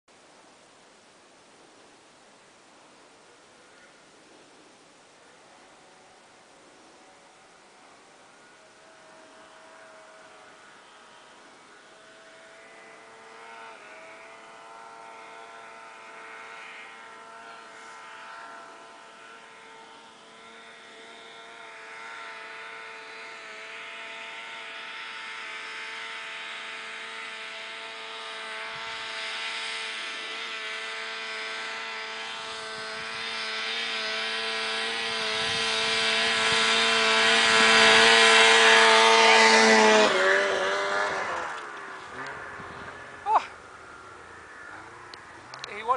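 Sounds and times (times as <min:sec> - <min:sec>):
snowmobile engine running high: 0:02.8 - 0:45.9.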